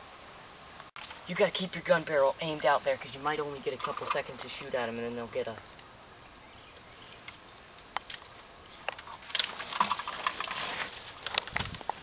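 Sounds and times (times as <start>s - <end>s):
dry twigs snapping and crackling: 6.7s - 12.0s.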